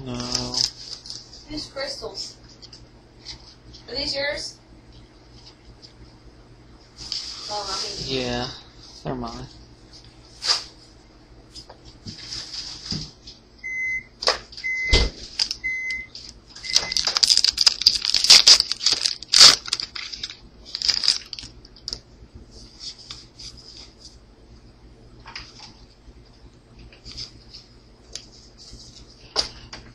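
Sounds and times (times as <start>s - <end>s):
wrapper crinkling and tearing: 0.1s - 1.3s, 15.2s - 15.6s, 16.2s - 22.0s
cards riffled and handled: 16.9s - 21.5s.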